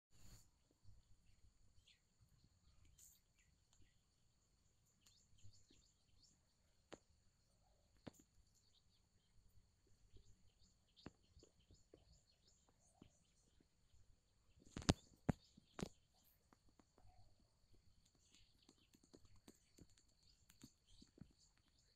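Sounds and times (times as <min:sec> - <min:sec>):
faint chirps: 0:00.1 - 0:21.9
faint clicks: 0:02.8 - 0:04.0, 0:04.9 - 0:05.8, 0:14.6 - 0:21.9.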